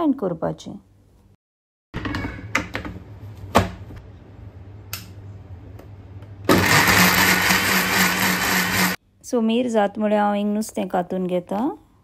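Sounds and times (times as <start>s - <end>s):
mixer grinder running: 6.5s - 9.0s.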